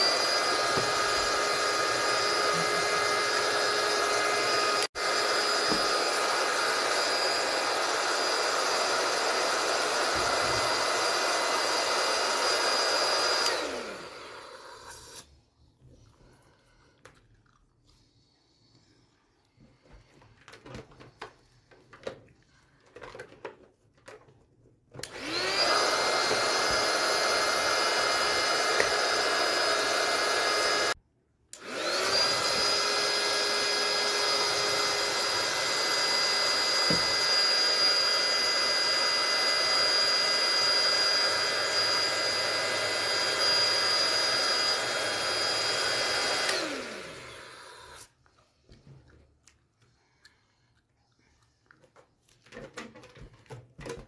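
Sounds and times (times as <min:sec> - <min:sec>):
balloon pump motor whine: 0:00.0 - 0:15.2, 0:25.0 - 0:31.0, 0:31.6 - 0:48.1.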